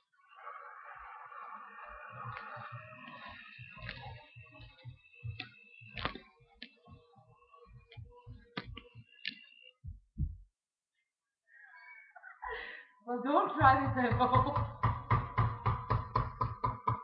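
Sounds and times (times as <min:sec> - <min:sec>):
stick blender humming: 0:00.9 - 0:10.2.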